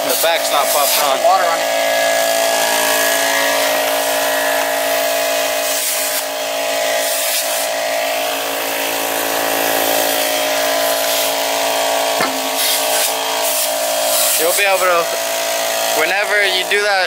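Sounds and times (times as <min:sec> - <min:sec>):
air compressor motor droning: 0:00.0 - 0:17.0
spray bottle squirts: 0:11.0 - 0:11.4, 0:12.2 - 0:14.6.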